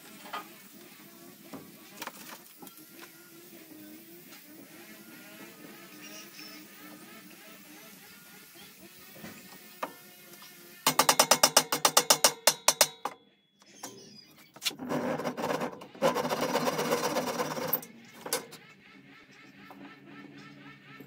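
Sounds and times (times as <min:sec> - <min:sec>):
faint background music: 0:00.0 - 0:11.6
hand saw cutting wood: 0:14.6 - 0:17.8.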